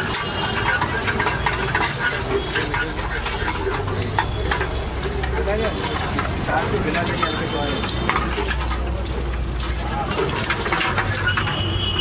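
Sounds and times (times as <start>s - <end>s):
food sizzling in a frying pan: 0.0s - 11.7s
metal spatulas scraping a pan: 0.0s - 11.7s.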